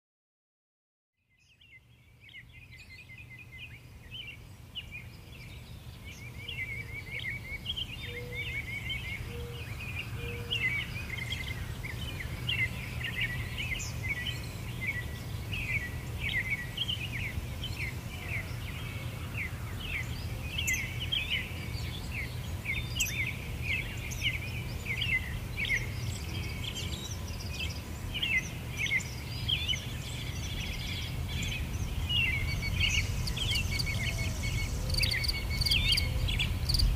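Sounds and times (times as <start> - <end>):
small birds chirping: 1.3 - 36.9
steady low rumble: 30.4 - 36.9.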